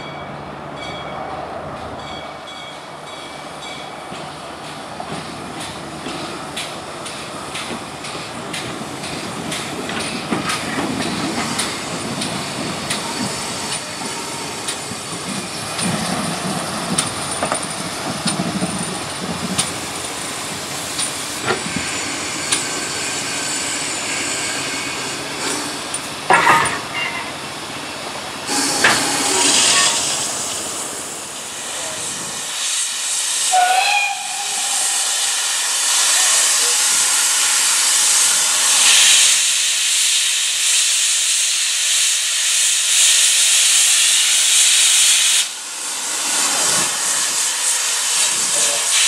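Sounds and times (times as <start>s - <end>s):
wheels clicking over rail joints: 4.0s - 21.8s
steam hissing: 5.2s - 49.0s.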